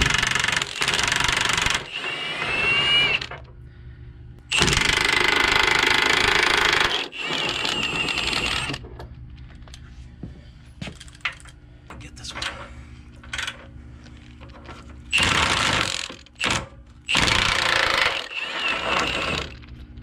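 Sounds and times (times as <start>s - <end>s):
high motor whine: 0.0s - 10.2s
impact wrench hammering bolts: 4.5s - 8.8s, 15.1s - 19.6s.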